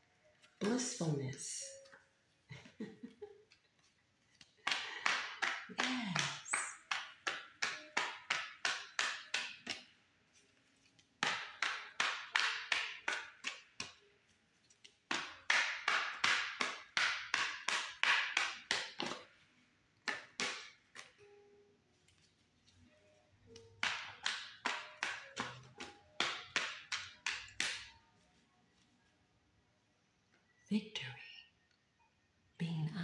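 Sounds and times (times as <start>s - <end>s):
hands clapping: 4.3s - 9.9s, 11.2s - 14.0s, 15.1s - 19.3s, 20.0s - 21.2s, 23.8s - 28.0s.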